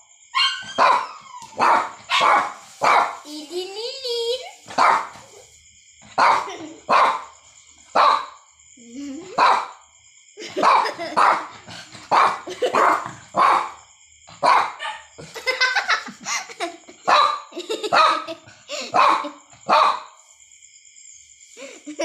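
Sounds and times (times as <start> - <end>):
small dog barking: 0.4 - 3.3, 4.7 - 5.4, 6.2 - 7.3, 7.9 - 8.4, 9.4 - 9.8, 10.4 - 13.8, 14.4 - 15.2, 17.1 - 20.1.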